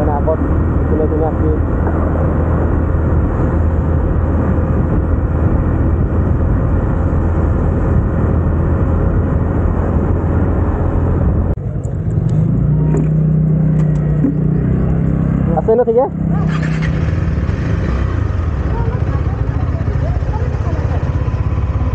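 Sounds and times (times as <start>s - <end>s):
wind rush on microphone: 0.0s - 11.6s
motorcycle engine cruising: 0.0s - 21.9s
motorcycle engine idling: 16.3s - 21.9s.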